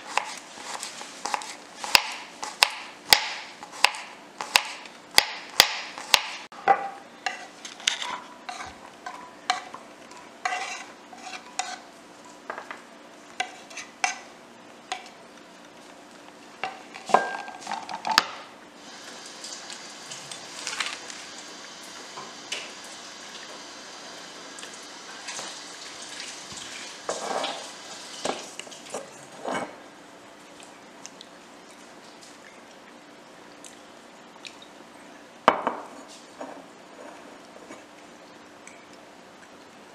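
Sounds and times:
knife chopping on wooden board: 0:00.0 - 0:06.5
faint steady hiss: 0:00.0 - 0:39.9.

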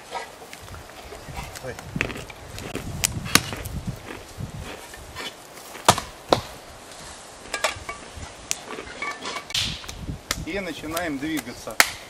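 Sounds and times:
axe chopping wood: 0:03.0 - 0:03.7, 0:05.8 - 0:06.6, 0:09.2 - 0:12.0.

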